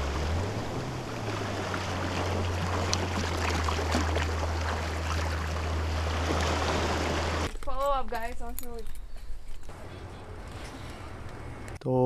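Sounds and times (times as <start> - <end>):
water splashing around wading feet: 0.3 - 7.6.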